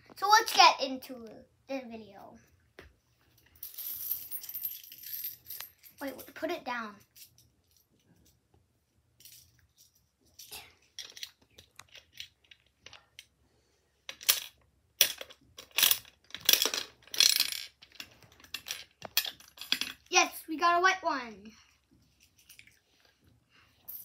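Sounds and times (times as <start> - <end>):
coins and gumballs rattling in toy machine: 14.2 - 20.1.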